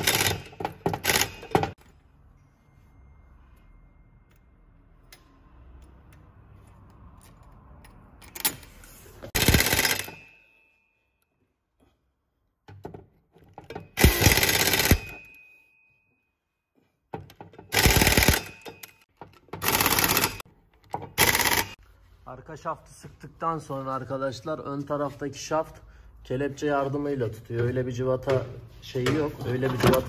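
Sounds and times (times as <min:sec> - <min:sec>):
pneumatic wrench bursts: 0:14.0 - 0:15.2, 0:17.7 - 0:18.6, 0:21.2 - 0:21.8.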